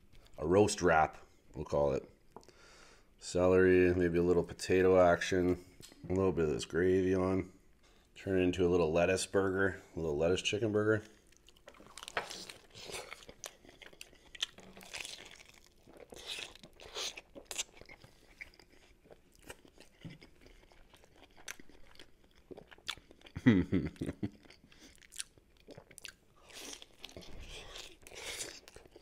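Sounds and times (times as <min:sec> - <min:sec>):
crunching and chewing food: 0:10.7 - 0:29.0
crisp lettuce crackles: 0:11.7 - 0:18.4.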